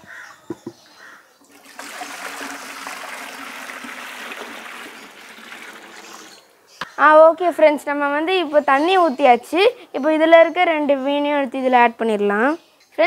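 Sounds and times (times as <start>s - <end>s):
bucket knocks: 0.5s - 0.8s
water pouring into aquarium: 1.4s - 6.5s.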